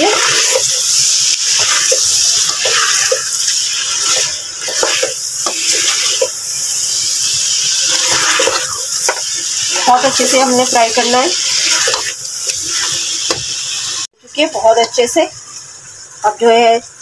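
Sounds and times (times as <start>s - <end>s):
meat sizzling in hot oil: 0.0s - 17.0s
spatula scraping a metal pot: 1.5s - 6.4s, 7.8s - 13.0s.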